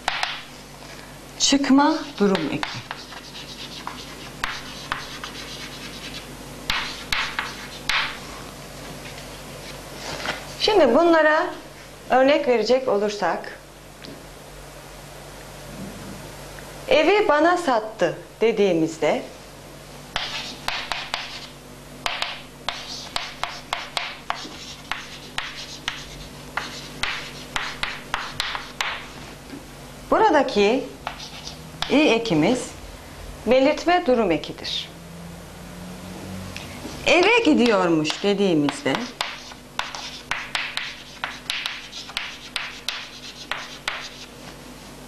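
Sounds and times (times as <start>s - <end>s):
chalk scratching on chalkboard: 2.0s - 8.2s, 20.2s - 21.5s, 22.1s - 29.2s, 31.0s - 32.0s, 38.1s - 44.3s.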